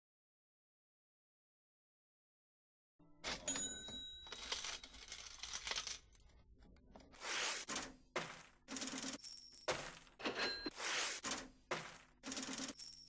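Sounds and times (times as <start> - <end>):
coins dropping and clinking: 3.3 - 6.4, 11.3 - 13.0.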